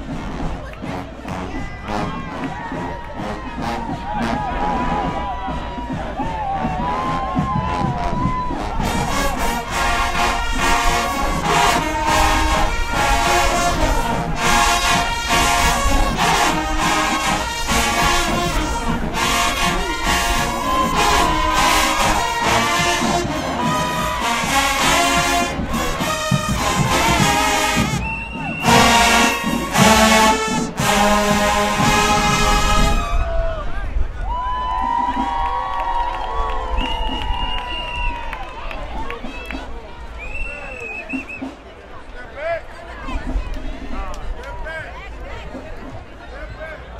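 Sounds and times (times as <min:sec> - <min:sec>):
brass section playing: 0:00.0 - 0:33.3.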